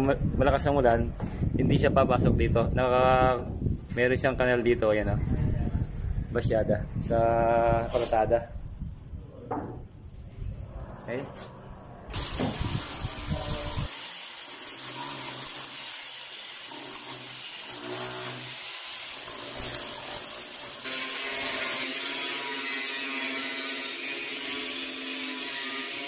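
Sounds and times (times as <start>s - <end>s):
angle grinder cutting steel: 12.1s - 26.0s
electric chipping hammer on concrete: 12.1s - 26.0s.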